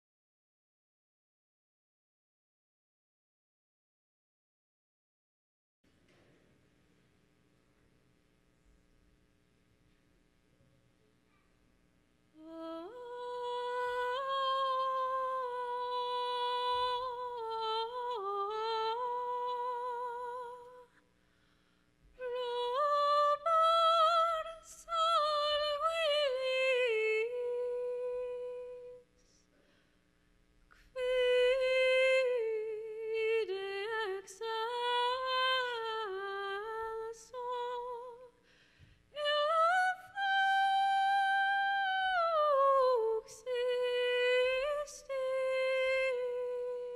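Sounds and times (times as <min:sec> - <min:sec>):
woman singing wordless notes: 0:12.4 - 0:21.0, 0:22.2 - 0:29.1, 0:30.8 - 0:38.4, 0:39.2 - 0:46.9.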